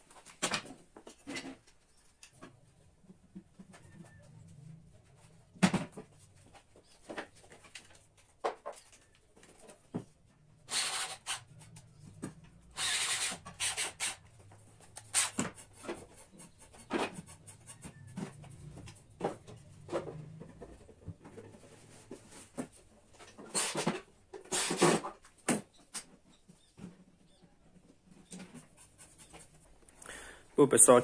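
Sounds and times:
scraping noises: 0:01.0 - 0:25.4.

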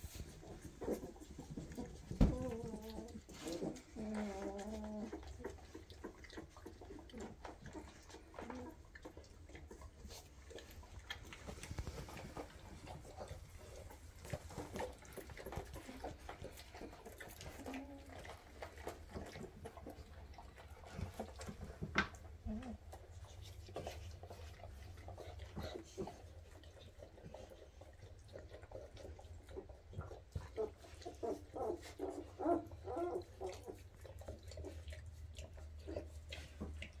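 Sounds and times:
rustling: 0:00.0 - 0:26.7
puppies suckling and smacking: 0:00.0 - 0:37.0
puppies whimpering: 0:00.2 - 0:10.2, 0:30.5 - 0:34.8.

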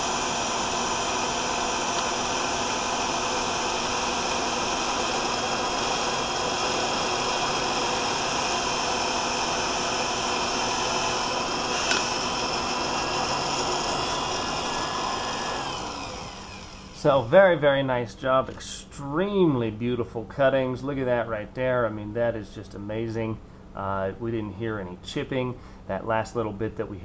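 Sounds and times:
cordless drill cutting metal: 0:00.0 - 0:17.0.

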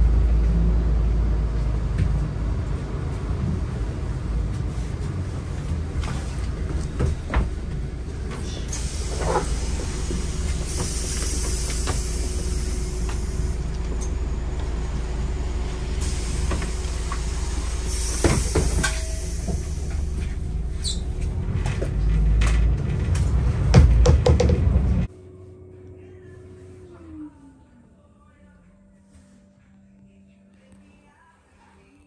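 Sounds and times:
bus engine and road rumble: 0:00.0 - 0:27.9
bodywork rattles and knocks: 0:05.0 - 0:08.5.

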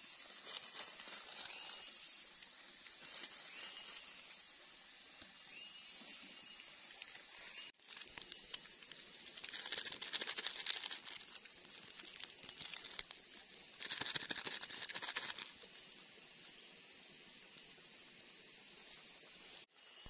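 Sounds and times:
foil sachets crinkling: 0:00.2 - 0:04.0, 0:06.9 - 0:15.6.

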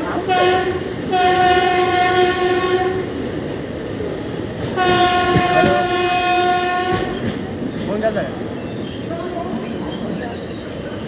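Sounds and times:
train rumble: 0:00.0 - 0:11.0
train air horn blasts: 0:00.3 - 0:03.0, 0:04.7 - 0:07.2.

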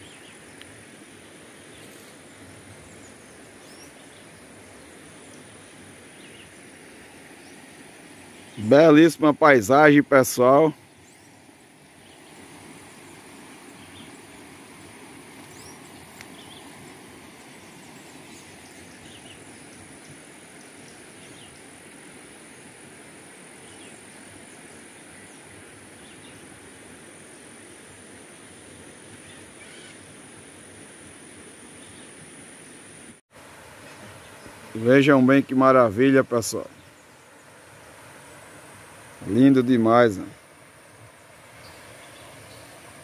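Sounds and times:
steady background hiss: 0:00.0 - 0:43.0
faint bird chirps: 0:02.8 - 0:06.5, 0:29.2 - 0:30.0.

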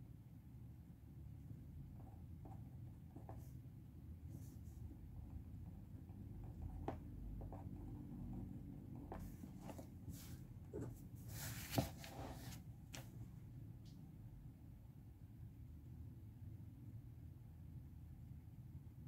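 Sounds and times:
room hum: 0:00.0 - 0:19.0
pen writing on paper: 0:02.0 - 0:03.5, 0:05.2 - 0:09.9
paper sliding rustle: 0:09.2 - 0:13.1.

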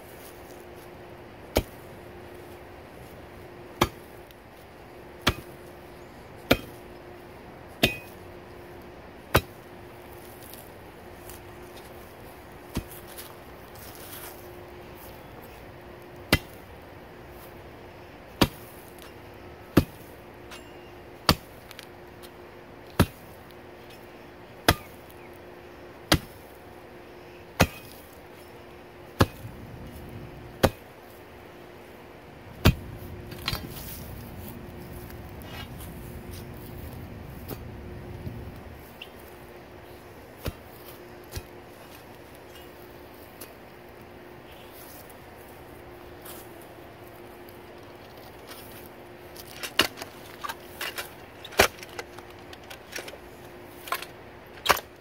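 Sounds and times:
steel bar chopping into root: 0:03.8 - 0:04.1, 0:05.2 - 0:05.6, 0:06.5 - 0:06.8, 0:07.8 - 0:08.2, 0:16.3 - 0:16.6, 0:26.1 - 0:26.4, 0:27.6 - 0:28.0, 0:29.2 - 0:29.5, 0:30.6 - 0:30.8, 0:32.6 - 0:34.0
low scuffling: 0:32.4 - 0:43.6.

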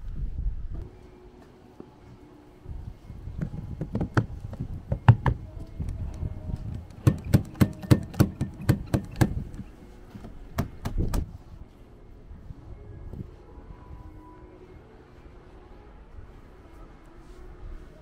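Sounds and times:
sharp knocks and clicks: 0:03.4 - 0:05.4, 0:06.7 - 0:09.7.

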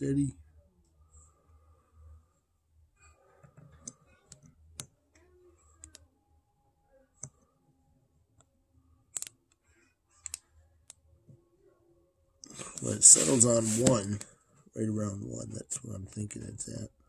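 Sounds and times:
probe tips clicking on connector pins: 0:09.1 - 0:09.6.

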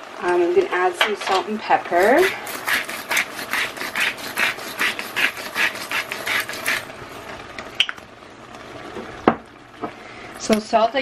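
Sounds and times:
pepper grinder grinding: 0:01.9 - 0:06.9.

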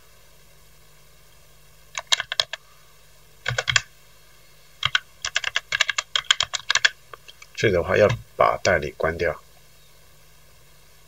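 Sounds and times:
computer keyboard typing: 0:02.0 - 0:02.6, 0:03.4 - 0:03.9, 0:04.8 - 0:07.0, 0:08.0 - 0:08.8.

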